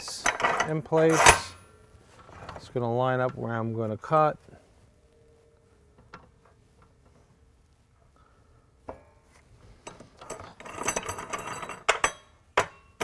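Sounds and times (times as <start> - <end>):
metal bar scraping on metal: 0.6 - 1.6.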